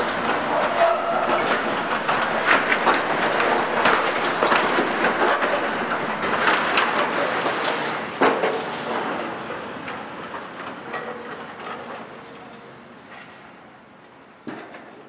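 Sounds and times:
excavator crunching debris and metal: 0.0s - 9.3s.

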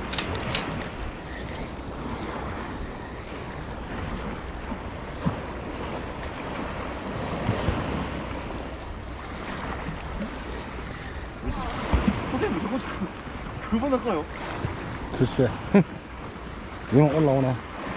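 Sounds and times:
sea waves washing: 0.0s - 17.9s
wind buffeting microphone: 0.0s - 17.9s.

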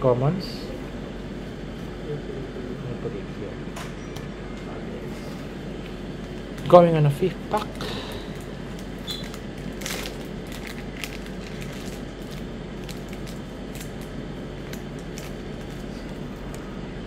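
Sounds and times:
steady background hum: 0.0s - 17.0s
foil wrapper crinkling: 7.7s - 16.7s.

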